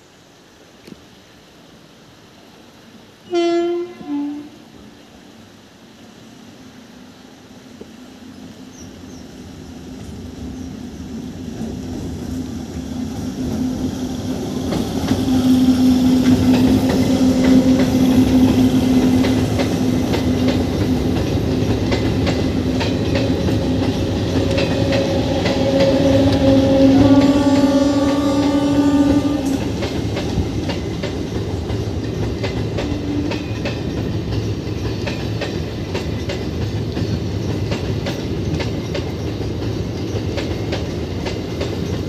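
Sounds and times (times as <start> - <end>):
train rumbling past: 2.8 - 42.0
wheels clacking over rail joints: 10.0 - 42.0.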